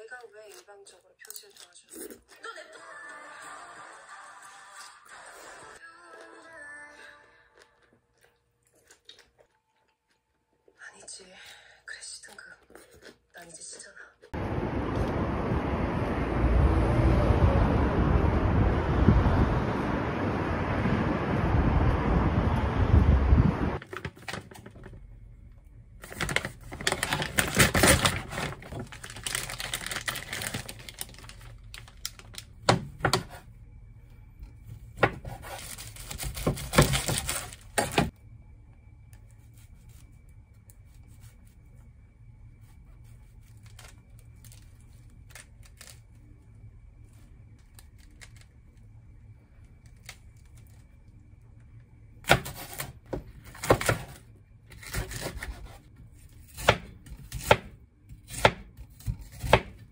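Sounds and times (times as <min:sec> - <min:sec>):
faint high whine: 0:37.3 - 0:52.3.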